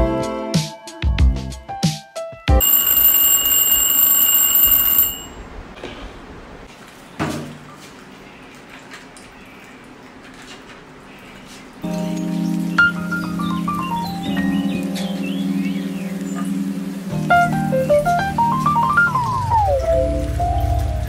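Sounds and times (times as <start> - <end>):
music: 0.0 - 2.6, 11.8 - 21.0
alarm clock bell ringing: 2.6 - 5.4.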